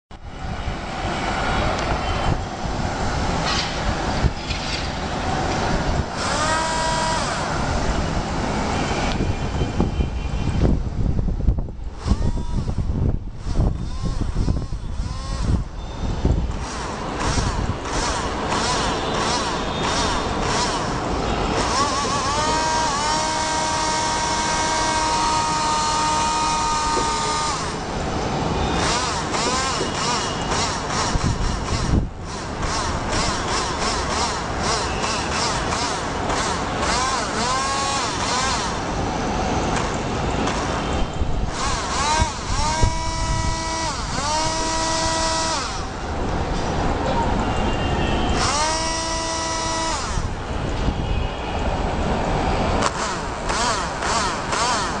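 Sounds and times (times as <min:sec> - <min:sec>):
small motor whirring: 0:06.0 - 0:07.6, 0:12.0 - 0:27.8, 0:28.8 - 0:38.8, 0:41.4 - 0:46.0, 0:48.3 - 0:50.4, 0:52.8 - 0:55.0.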